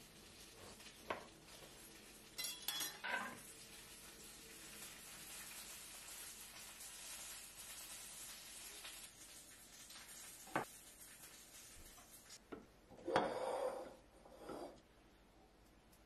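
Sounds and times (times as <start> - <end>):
steady hiss: 0.0 - 12.5
tableware clicking: 2.4 - 3.4
tableware scraping clatter: 2.4 - 3.4, 12.9 - 14.8.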